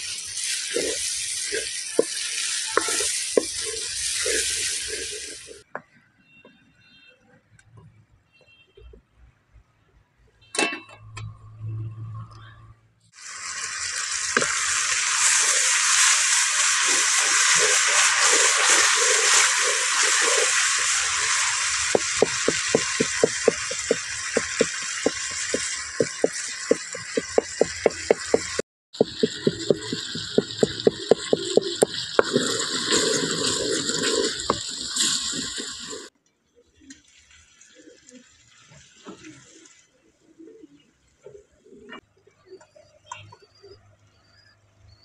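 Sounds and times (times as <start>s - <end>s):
spices sizzling in hot oil: 0.0s - 5.6s, 13.1s - 36.1s
spatula scraping metal pan: 0.7s - 5.4s, 15.3s - 35.7s.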